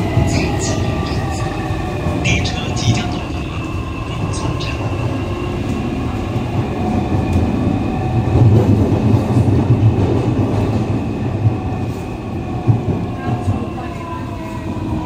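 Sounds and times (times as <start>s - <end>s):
rumble of wheels on track: 0.0s - 15.0s.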